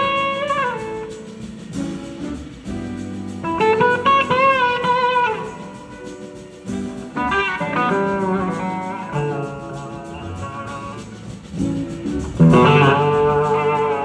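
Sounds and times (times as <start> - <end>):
blues rock band: 0.0 - 14.0
electric slide guitar lead: 0.0 - 14.0.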